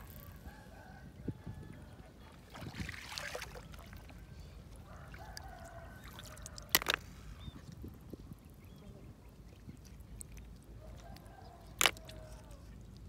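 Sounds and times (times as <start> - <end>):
water splashing and dripping: 2.5 - 4.1
snail shells clacking in basin: 6.4 - 7.5, 11.1 - 12.8.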